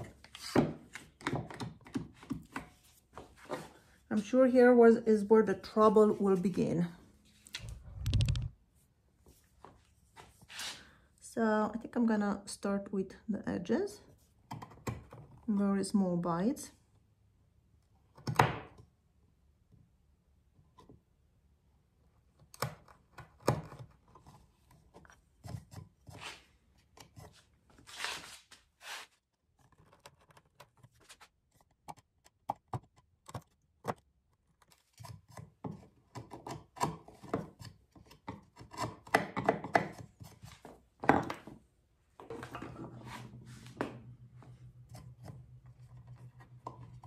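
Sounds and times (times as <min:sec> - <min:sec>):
chisel clicking and scraping wood: 0:34.6 - 0:40.4.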